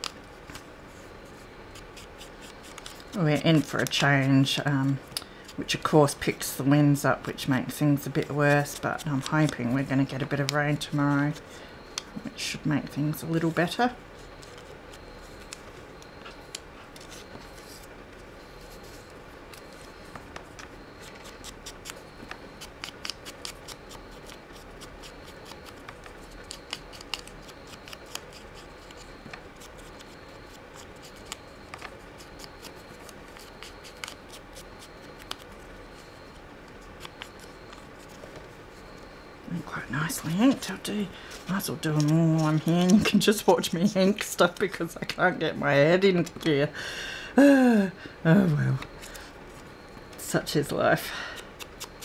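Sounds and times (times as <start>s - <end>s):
electric fan hum: 0.0s - 52.0s
papery scratches: 0.9s - 5.9s, 13.0s - 19.9s, 32.2s - 38.8s.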